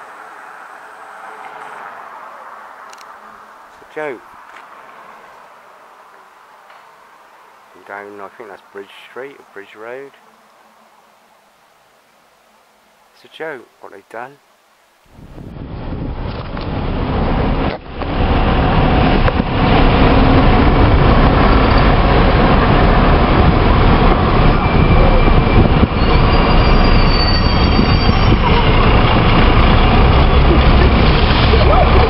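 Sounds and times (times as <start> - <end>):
thin high whine: 0.0 - 13.1
dense street traffic rumble: 0.0 - 32.0.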